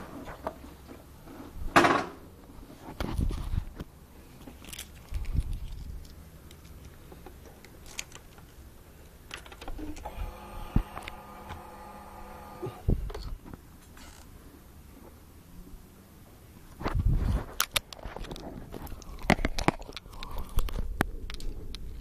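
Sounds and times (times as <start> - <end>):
fuel pump whirring: 9.7 - 13.1.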